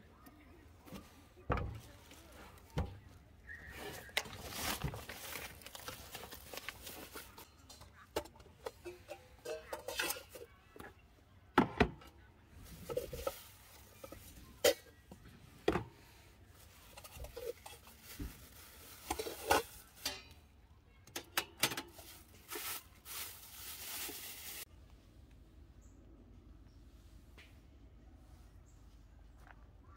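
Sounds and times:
rustling: 0.8 - 8.7, 21.8 - 24.7
steel pots clinking: 3.5 - 10.6, 16.8 - 20.5.

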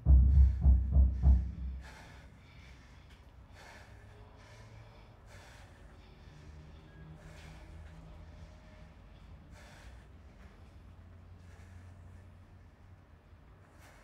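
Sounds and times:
deep low thumps: 0.0 - 2.2
person breathing hard: 0.0 - 14.0.

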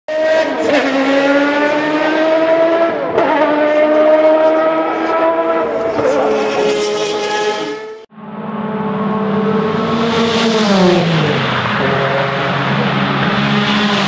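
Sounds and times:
race car engine accelerating: 0.1 - 14.0.

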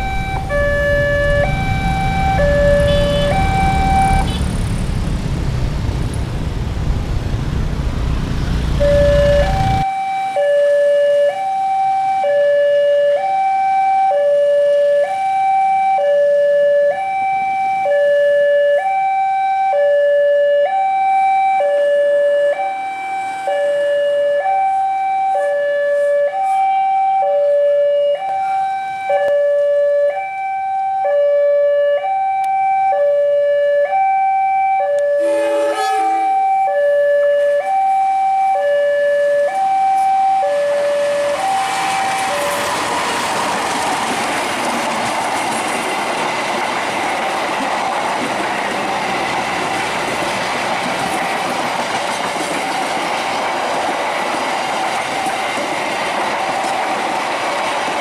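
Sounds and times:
two-tone level crossing alarm: 0.0 - 4.8, 8.7 - 43.1
passing train rumble: 0.0 - 9.9, 35.0 - 58.0.

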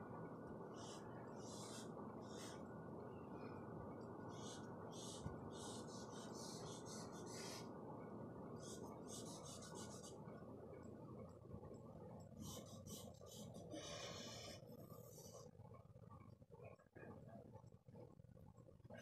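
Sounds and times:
charcoal scratching on paper: 8.6 - 10.2.

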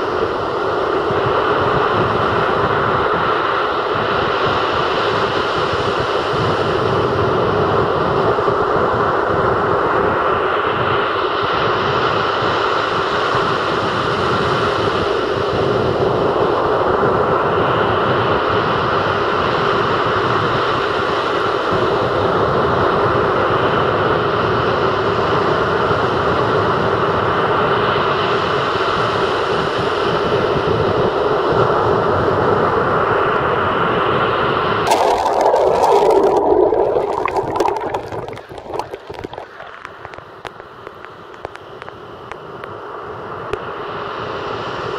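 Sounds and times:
waves breaking on shore: 34.9 - 41.8.

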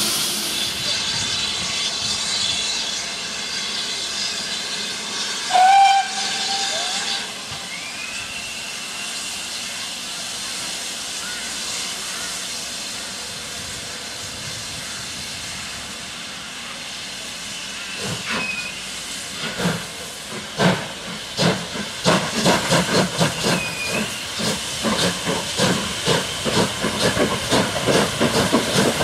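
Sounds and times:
steam hissing: 0.0 - 29.0
steam whistle blast: 5.5 - 9.4.

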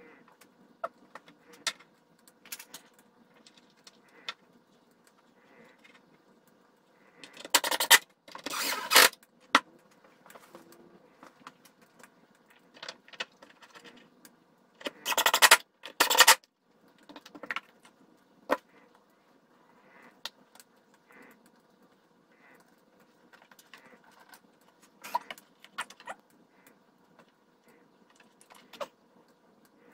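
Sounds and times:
screws clicking and rattling: 7.3 - 9.3, 14.8 - 16.4.

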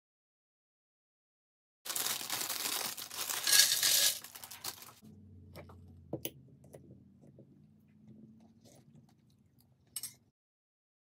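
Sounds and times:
low hum: 5.0 - 10.0.

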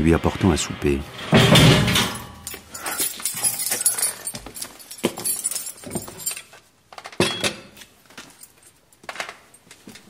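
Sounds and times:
glass and dishes clinking: 1.3 - 6.5, 7.2 - 7.8
keys jangling: 2.4 - 6.6, 8.2 - 10.0.

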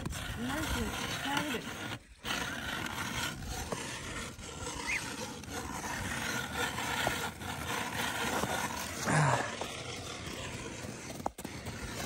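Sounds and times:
ice auger grinding into ice: 0.0 - 12.0.

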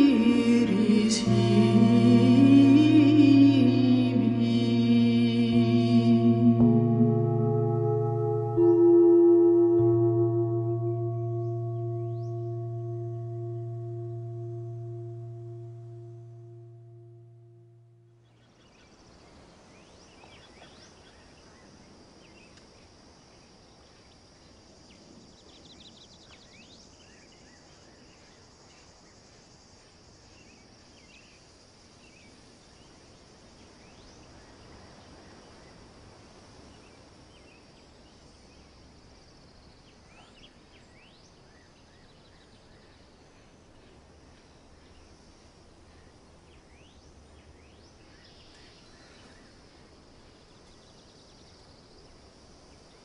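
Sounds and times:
high insect drone: 0.0 - 18.1
bird trill: 5.6 - 18.0
bird chirps: 7.2 - 18.4.

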